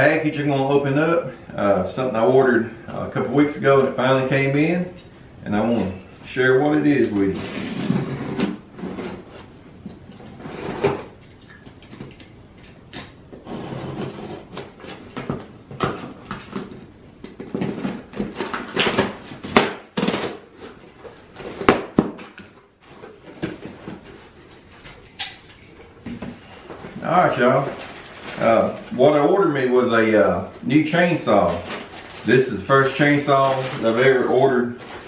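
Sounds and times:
cardboard flaps rustling: 25.9 - 29.4, 30.4 - 35.0.

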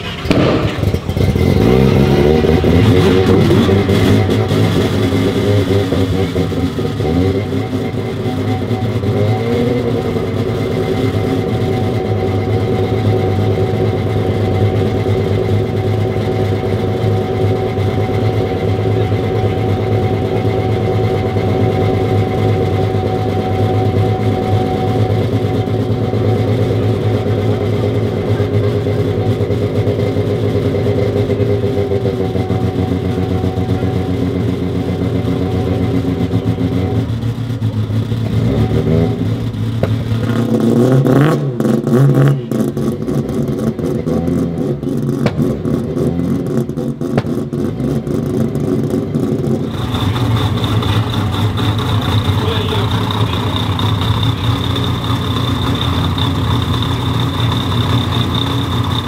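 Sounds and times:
rotary engine idling and revving: 0.0 - 59.0.

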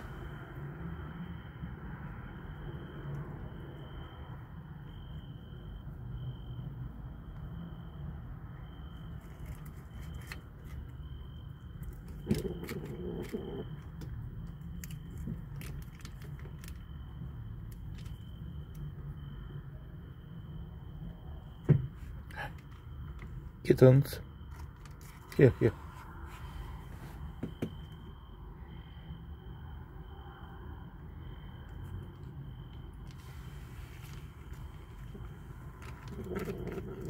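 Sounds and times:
faint high whine: 0.0 - 37.0
high insect trill: 0.0 - 37.0
low rumbling background noise: 0.0 - 37.0
kittens chewing food: 11.6 - 18.3, 34.0 - 37.0.

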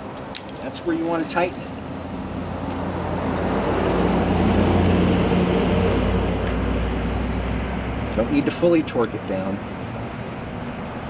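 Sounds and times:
vehicle driving past: 2.2 - 8.4.

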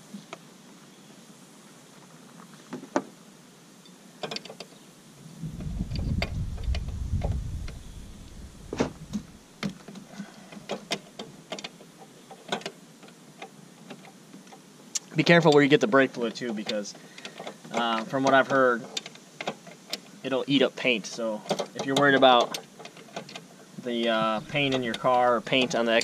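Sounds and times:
low rumble: 5.2 - 9.4.

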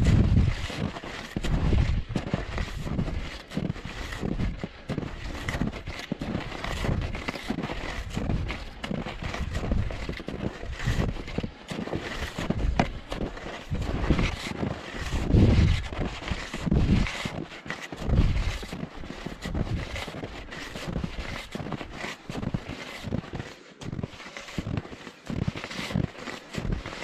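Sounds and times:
wind buffeting microphone: 0.0 - 0.8, 1.4 - 3.3, 15.0 - 17.2
skis crunching through snow: 0.0 - 27.0.

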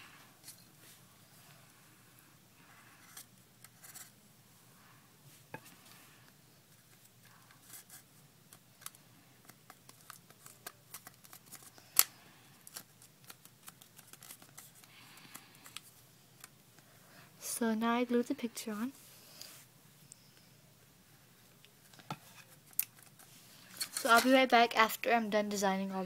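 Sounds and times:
soft paper rustles: 5.6 - 16.5, 21.8 - 24.4.

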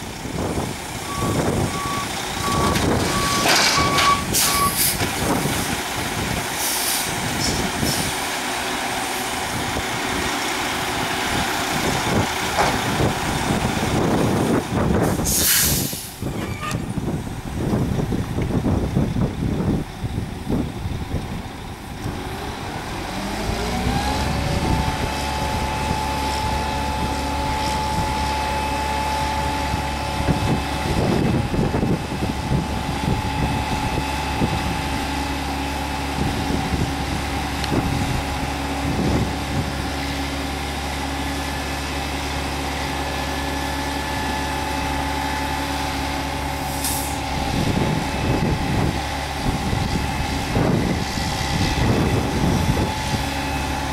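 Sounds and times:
diesel truck engine revving: 0.0 - 53.9
short hiss: 15.2 - 16.2, 46.7 - 47.2
steady whine: 24.2 - 39.3.

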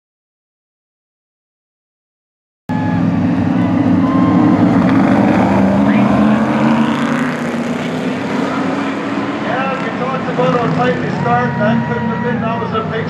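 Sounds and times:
truck engines droning: 2.7 - 13.0.

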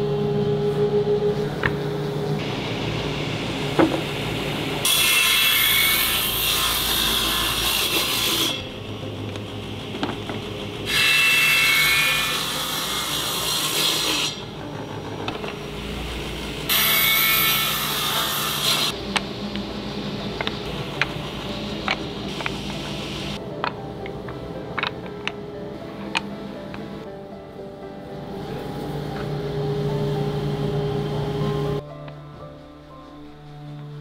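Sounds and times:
table saw cutting wood: 2.4 - 23.4.

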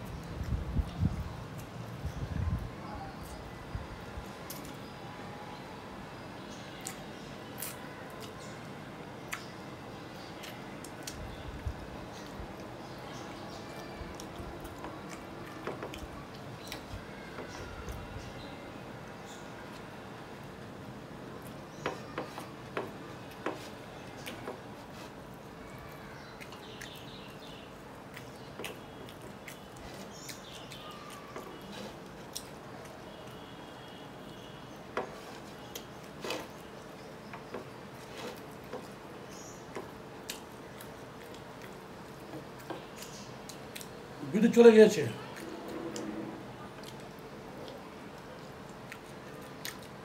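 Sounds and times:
chewing: 12.1 - 18.2, 21.4 - 44.2, 45.2 - 50.0.

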